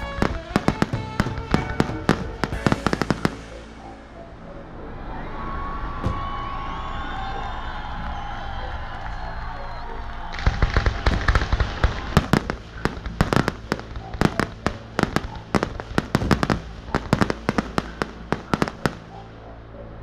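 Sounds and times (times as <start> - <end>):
fireworks bangs and crackles: 0.0 - 4.0, 10.3 - 19.4.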